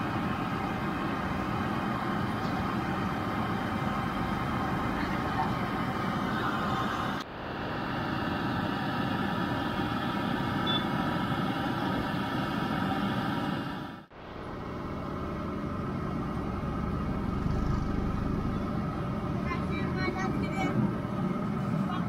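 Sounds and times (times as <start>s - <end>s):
vehicle engines running: 0.0s - 7.2s, 14.1s - 22.0s
low rumble: 14.8s - 19.4s
street market din: 15.6s - 22.0s.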